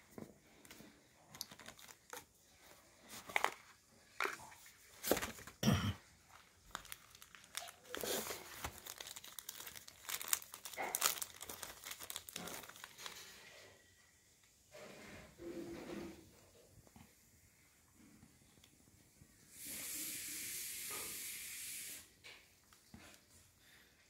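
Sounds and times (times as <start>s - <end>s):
cardboard packaging rustling: 0.1s - 5.6s, 6.2s - 13.4s.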